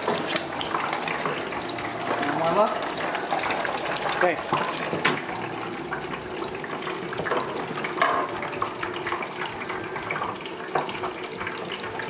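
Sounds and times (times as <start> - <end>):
hot oil bubbling and crackling: 0.0 - 12.0.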